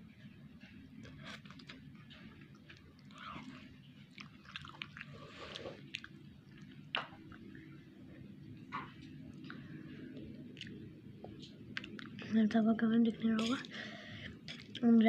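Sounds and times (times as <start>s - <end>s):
person chewing noodles: 1.0s - 7.6s, 9.3s - 12.2s.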